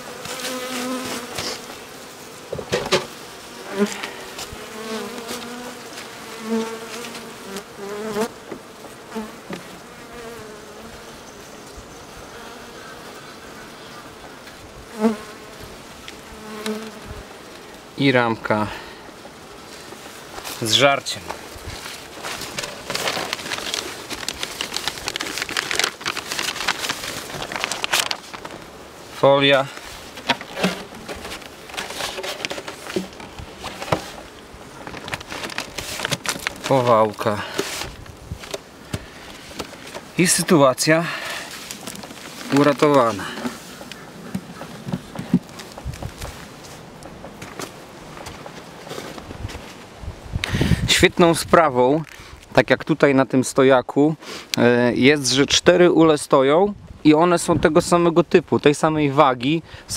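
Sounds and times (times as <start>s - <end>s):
honeybees buzzing: 0.0s - 49.3s
wooden hive frame knocks: 2.5s - 3.2s
plastic foil crinkling: 21.6s - 28.7s, 29.8s - 38.6s, 41.5s - 44.0s.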